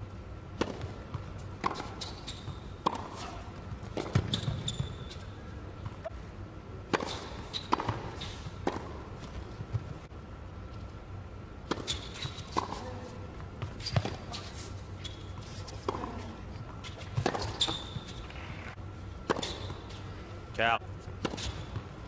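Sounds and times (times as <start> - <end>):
tennis balls struck by rackets: 0.5 - 5.0, 6.8 - 9.9, 11.6 - 14.4, 15.8 - 18.1, 19.2 - 20.0, 21.2 - 21.9
tennis balls bouncing on hard court: 0.5 - 6.1, 6.9 - 10.0, 11.6 - 14.4, 15.7 - 18.2, 19.2 - 20.0
sneaker squeaks on court: 1.7 - 3.4, 4.0 - 5.3, 11.8 - 12.9, 13.7 - 15.4, 16.9 - 18.2.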